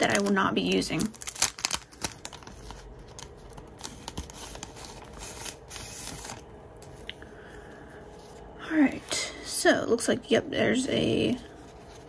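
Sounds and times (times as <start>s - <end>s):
paper napkin rustling: 0.0s - 7.0s
plastic bag crinkling: 0.0s - 7.0s.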